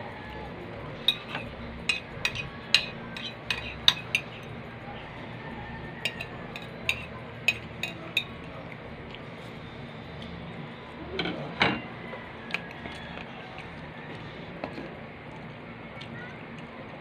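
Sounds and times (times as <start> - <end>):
cutlery clinking on ceramic plate: 1.0 - 4.5, 6.0 - 8.4, 11.2 - 11.9.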